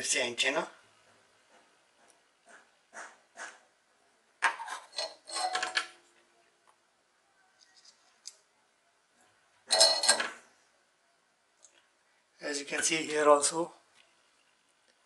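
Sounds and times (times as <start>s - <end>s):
tools rattling and clattering: 4.4s - 6.0s, 9.7s - 10.4s.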